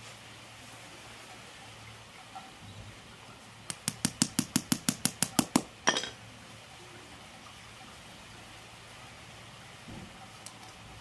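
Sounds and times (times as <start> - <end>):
small hammer tapping metal: 3.7 - 6.2.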